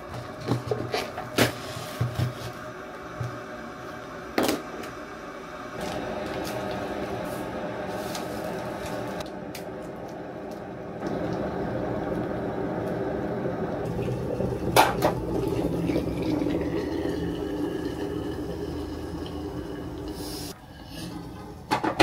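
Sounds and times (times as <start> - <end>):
water pouring into cup: 13.8 - 20.5.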